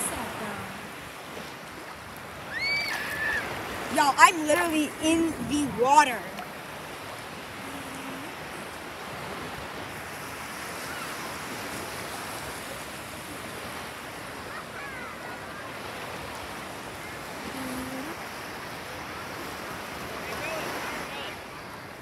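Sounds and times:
small waves lapping: 0.0s - 22.0s
wind on microphone: 2.2s - 14.4s.

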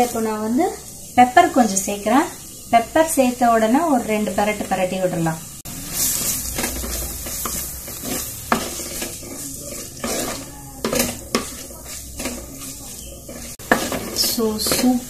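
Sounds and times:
food sizzling in a pot: 0.0s - 15.0s
spatula scraping a pot: 5.6s - 15.0s.

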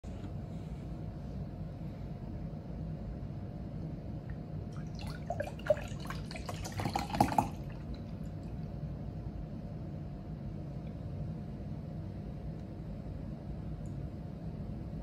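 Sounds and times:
milk pouring into a glass: 4.8s - 8.3s.

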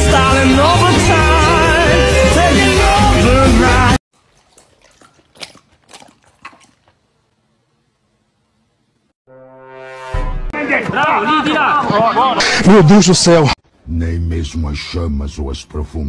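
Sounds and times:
pop song with vocal: 0.0s - 4.0s.

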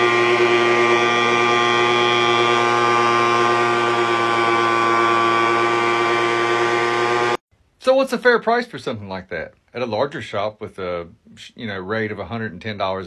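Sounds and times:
leaf blower engine running: 0.0s - 7.4s.

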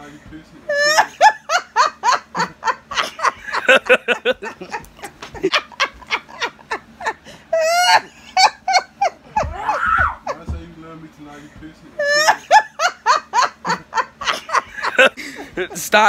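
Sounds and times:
woman squealing laugh: 0.7s - 4.8s, 5.4s - 10.4s, 12.0s - 14.7s
woman laughing hard: 0.7s - 10.5s, 12.0s - 15.8s.

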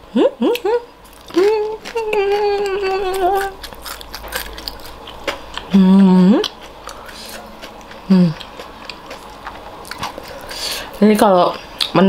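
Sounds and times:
woman humming with enjoyment: 0.0s - 3.6s, 5.7s - 6.5s, 8.0s - 8.5s.

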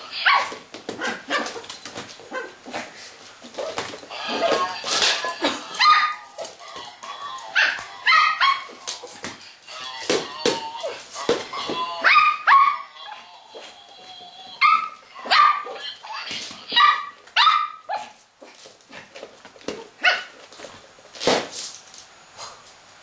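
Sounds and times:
small dog yapping: 0.2s - 1.7s.

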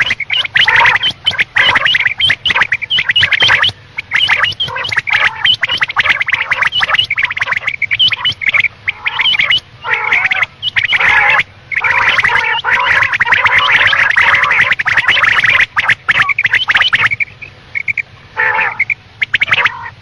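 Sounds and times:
lower fuller calls: 0.0s - 20.0s
quail calls: 0.0s - 20.0s.

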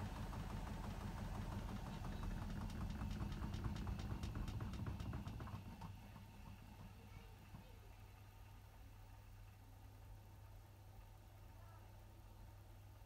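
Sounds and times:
washing machine drum tumbling: 0.0s - 7.8s.

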